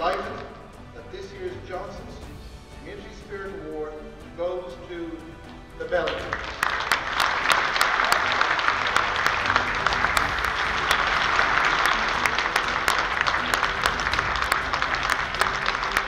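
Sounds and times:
audience applauding: 6.1s - 16.0s.

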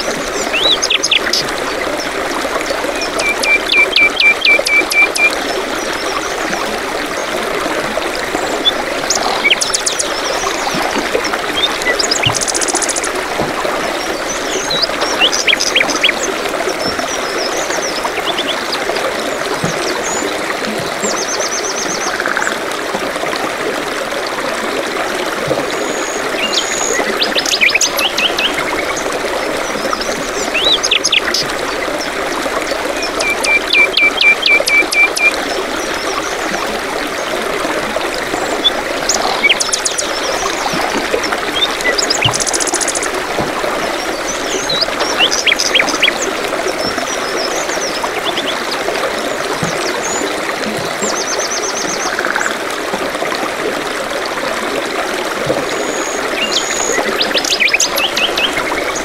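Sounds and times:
waterfalls and stream rushing: 0.0s - 59.0s
songbirds chirping and trilling: 8.4s - 13.2s, 13.9s - 18.9s, 38.3s - 43.2s.

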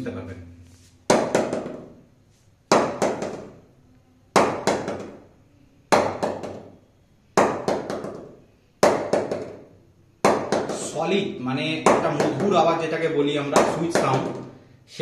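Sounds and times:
mallet knocking cricket bat: 1.1s - 2.0s, 2.7s - 3.6s, 4.3s - 5.3s, 5.9s - 6.8s, 7.4s - 11.0s, 11.8s - 14.6s.

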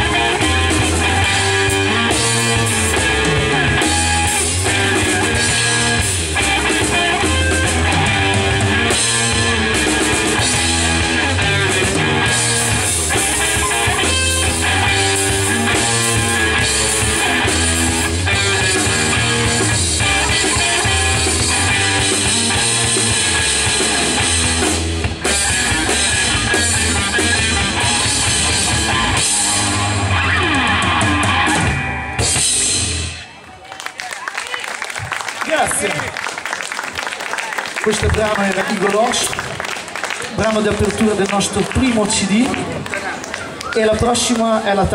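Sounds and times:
pulsing electric bass line: 0.0s - 33.2s
drum kit: 0.0s - 33.3s
electric guitar: 0.0s - 33.4s.

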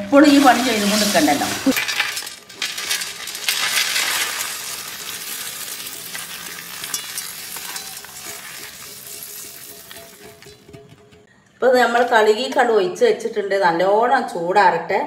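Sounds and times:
spices rattling onto steel plate: 0.2s - 11.3s.

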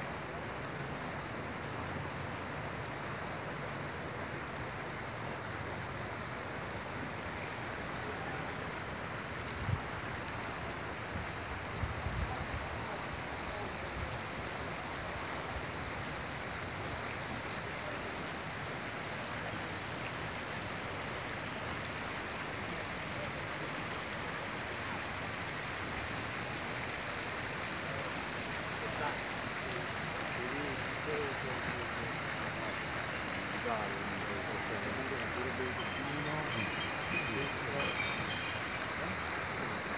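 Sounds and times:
seafront ambience rushing: 25.6s - 39.9s.

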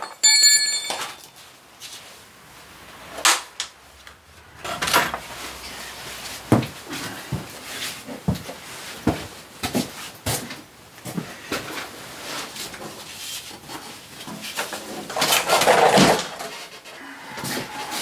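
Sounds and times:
metal tools clanking: 0.0s - 1.4s.

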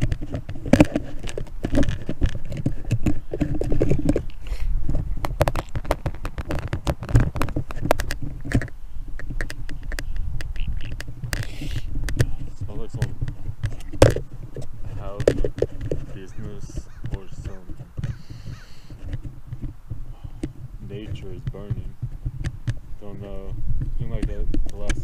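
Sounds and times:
camera case clicks and scraping: 0.0s - 19.8s.

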